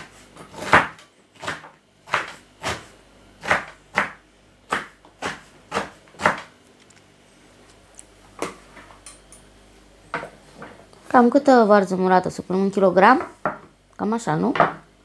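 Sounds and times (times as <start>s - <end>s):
knife chopping on wooden board: 0.0s - 6.5s.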